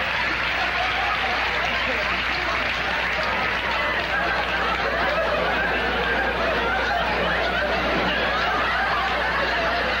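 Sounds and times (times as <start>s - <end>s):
audience laughing: 0.0s - 10.0s
cast laughing: 3.6s - 10.0s.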